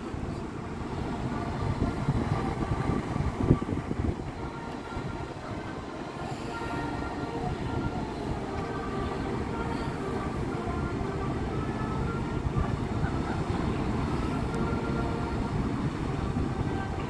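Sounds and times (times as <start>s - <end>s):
faint whining tones: 0.0s - 17.0s
ship engines rumbling: 0.0s - 17.0s.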